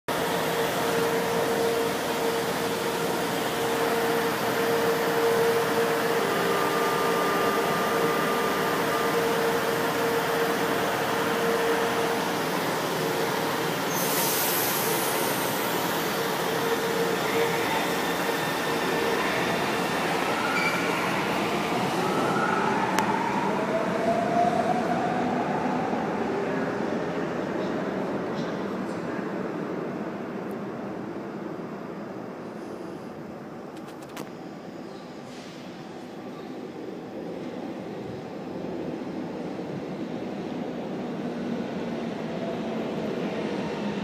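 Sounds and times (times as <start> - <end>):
electric train rumble and whine: 0.1 - 44.0
sharp hiss of air: 13.9 - 16.0.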